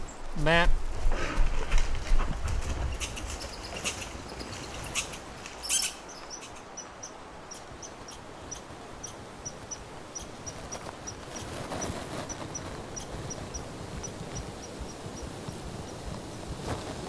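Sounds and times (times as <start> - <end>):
small animal high chirp: 4.9 - 6.8.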